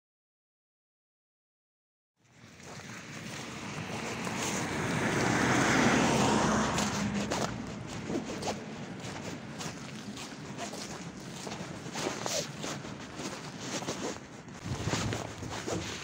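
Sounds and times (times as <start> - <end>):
vehicle passing close by: 2.8 - 12.5.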